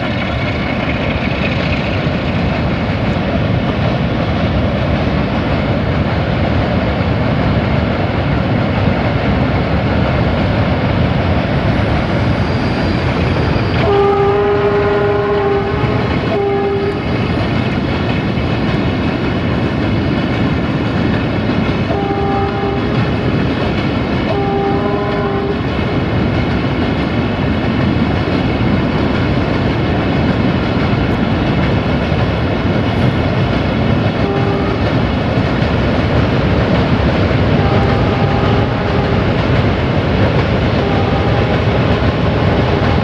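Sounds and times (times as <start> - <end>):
freight train rumbling: 0.0 - 43.0
locomotive horn blasts: 13.8 - 17.0, 21.9 - 23.0, 24.3 - 25.6, 34.2 - 34.9, 37.5 - 39.3, 40.8 - 41.7.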